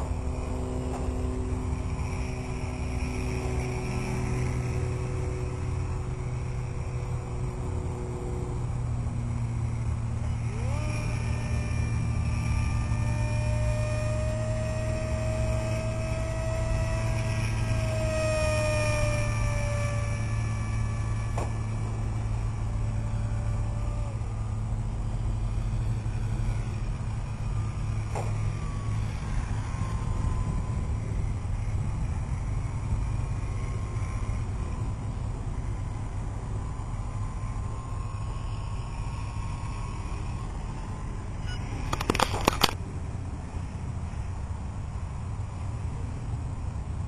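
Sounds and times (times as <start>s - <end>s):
electric motor whine: 0.0s - 47.0s
steady low rumble: 0.0s - 47.0s
sharp clicks: 41.5s - 42.8s.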